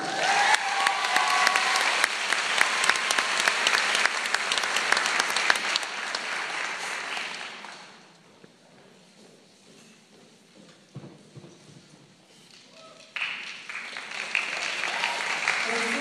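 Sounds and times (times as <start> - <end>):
audience applauding: 0.0 - 8.0, 12.6 - 16.0.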